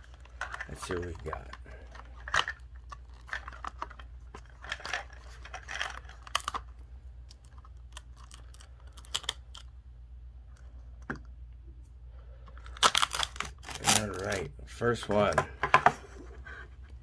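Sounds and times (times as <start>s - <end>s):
plastic wrap crinkling: 0.0s - 6.7s, 7.3s - 9.7s, 12.6s - 14.5s
steady low hum: 0.0s - 17.0s.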